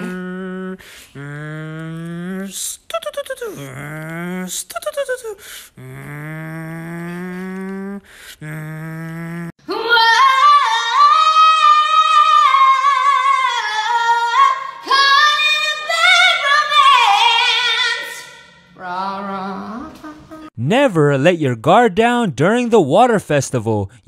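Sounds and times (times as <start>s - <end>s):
held low tones: 0.0s - 9.6s
woman singing high notes: 0.0s - 20.5s.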